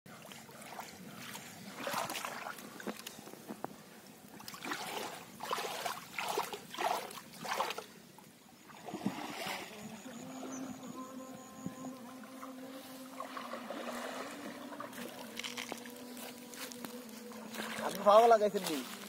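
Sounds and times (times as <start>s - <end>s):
water splashing in fishing net: 0.2s - 3.1s, 4.4s - 7.9s, 8.7s - 9.7s, 12.3s - 19.0s.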